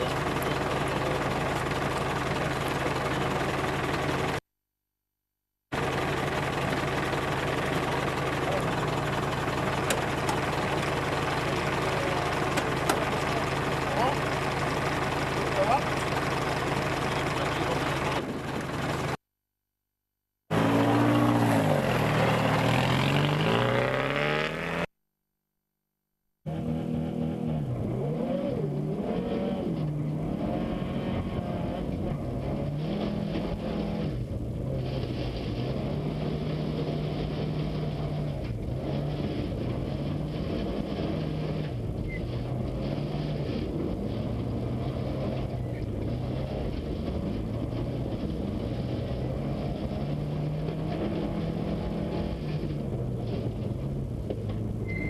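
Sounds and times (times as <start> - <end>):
car engine revving: 20.5 - 24.9, 26.5 - 54.9.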